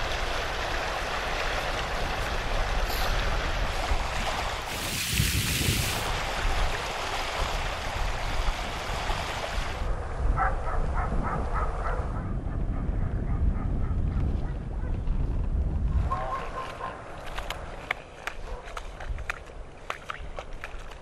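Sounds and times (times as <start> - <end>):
river water flowing: 0.0 - 9.9
wind rumbling on microphone: 0.0 - 21.0.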